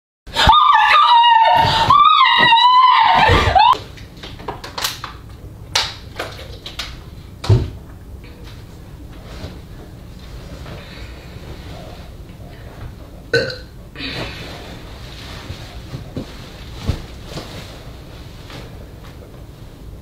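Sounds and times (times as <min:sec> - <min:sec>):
woman screaming: 0:00.4 - 0:03.8.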